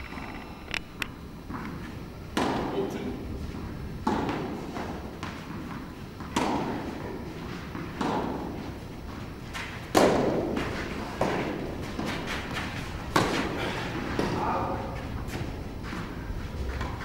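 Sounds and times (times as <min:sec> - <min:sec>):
tennis ball hits echoing: 0:02.3 - 0:02.7, 0:04.0 - 0:05.4, 0:06.2 - 0:06.9, 0:07.7 - 0:08.6, 0:09.9 - 0:14.4.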